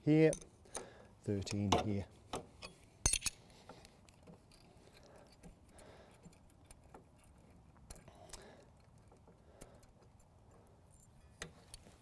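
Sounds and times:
steel spanners clinking on metal: 2.6 - 3.4.

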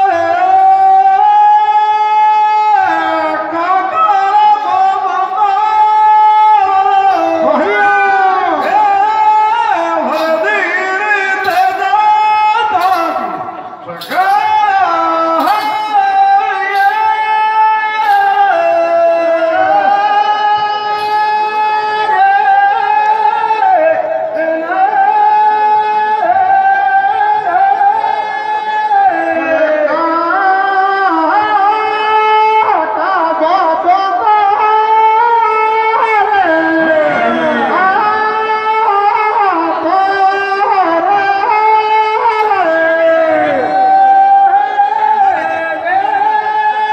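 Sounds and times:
person singing into microphone: 0.0 - 46.9
sharp strikes: 10.1 - 17.4, 18.0 - 19.0.

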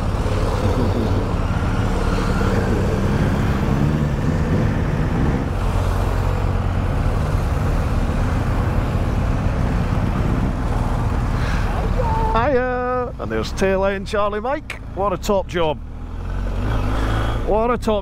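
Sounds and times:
motorcycles riding past: 0.0 - 6.2.

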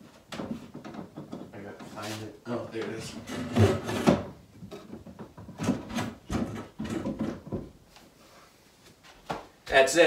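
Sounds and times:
wooden table knocks and scrapes: 3.2 - 7.8.

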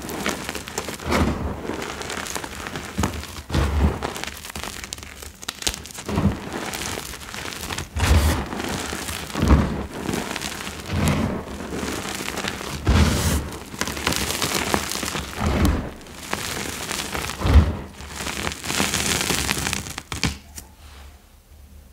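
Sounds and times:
falling powder hiss: 0.0 - 20.4
chalk lumps crunching: 0.0 - 20.6
dull low thump: 17.4 - 18.0.

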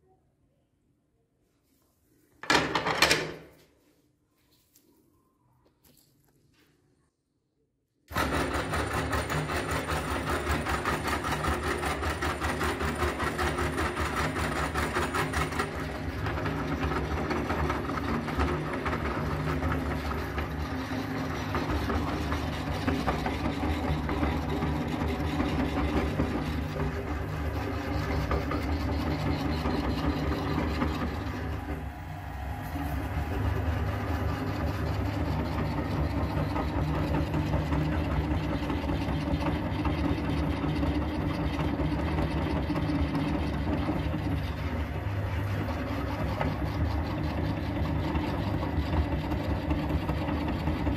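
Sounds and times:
meat grinder rattling clatter: 8.1 - 31.6, 33.7 - 50.9.

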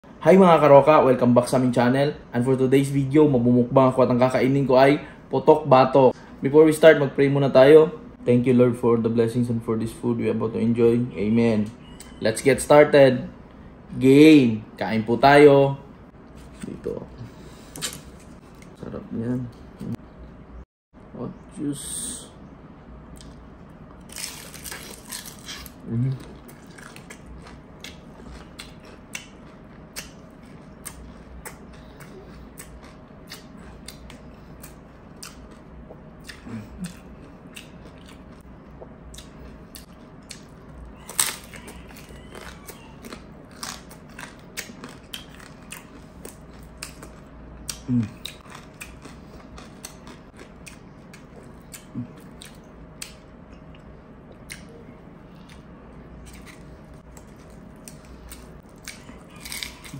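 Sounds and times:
faint steady hum: 0.0 - 59.9
person eating crunchy food: 16.4 - 18.8, 23.2 - 53.2, 53.8 - 59.9.

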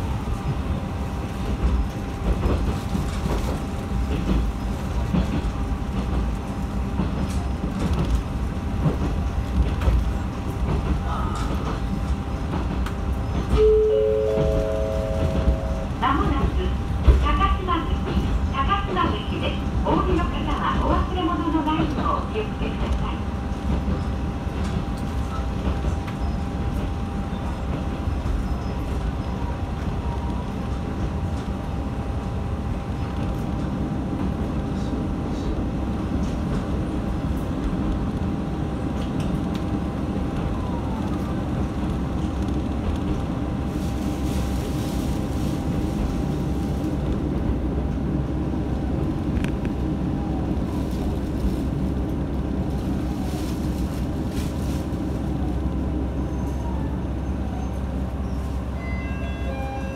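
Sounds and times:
railcar engine rumble: 0.0 - 59.9.

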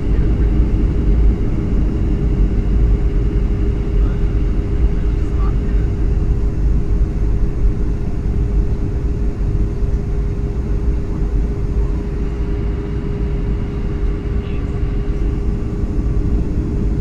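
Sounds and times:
jet cabin engine rumble: 0.0 - 17.0.

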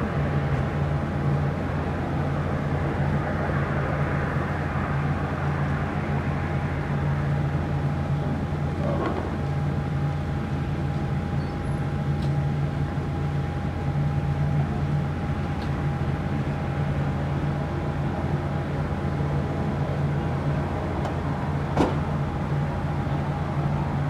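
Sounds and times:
turboprop engines droning: 0.0 - 24.0.

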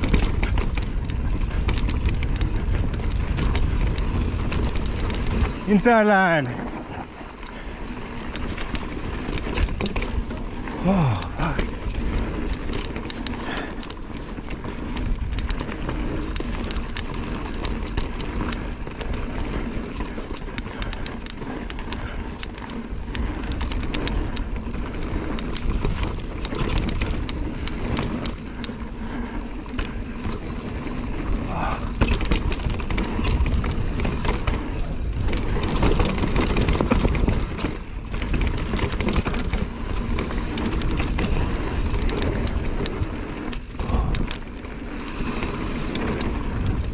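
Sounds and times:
bike clattering over bumps: 0.0 - 46.9
tyres rolling over dirt: 0.0 - 46.9.

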